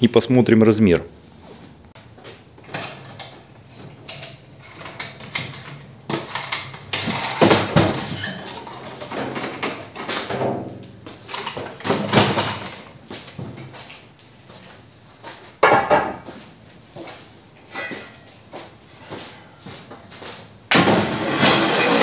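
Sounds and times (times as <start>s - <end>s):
metal clanks and scraping: 2.2s - 13.0s, 17.6s - 18.4s, 20.1s - 22.0s.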